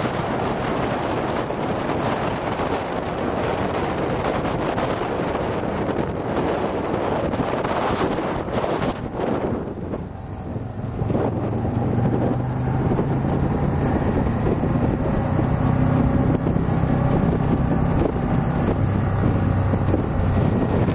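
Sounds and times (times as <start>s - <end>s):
vehicle engine running: 0.0s - 20.9s
wind rushing over microphone: 0.0s - 20.9s.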